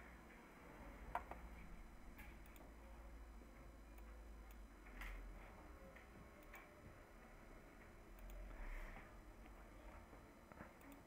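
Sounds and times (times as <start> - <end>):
computer mouse clicks: 2.2 - 2.7.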